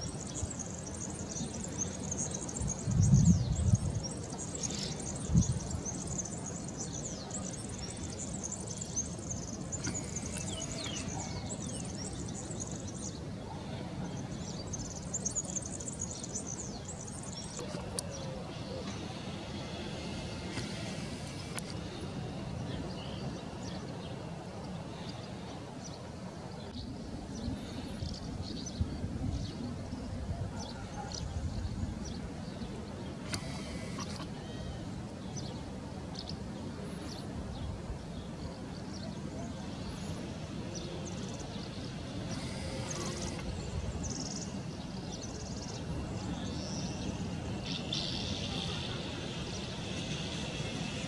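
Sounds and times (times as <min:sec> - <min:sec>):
house martins chirping: 0:00.0 - 0:24.0, 0:36.2 - 0:51.0.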